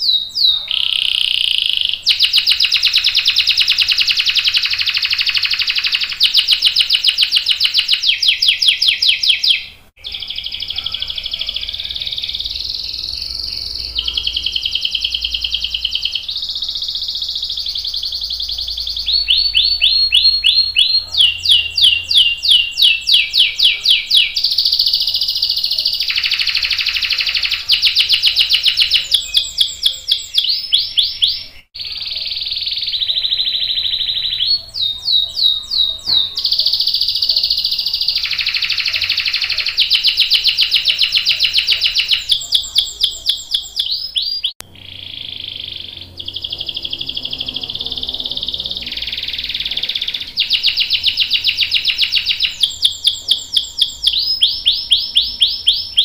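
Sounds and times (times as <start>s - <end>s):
canary singing trills: 0.0s - 56.0s.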